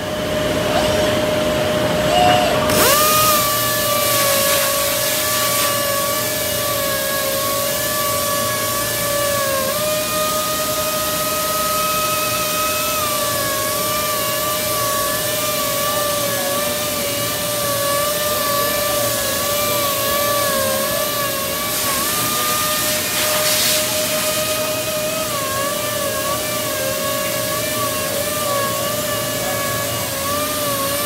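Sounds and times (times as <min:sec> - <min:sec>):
orbital sander whine: 0:00.0 - 0:31.0
sanding hiss: 0:02.8 - 0:31.0.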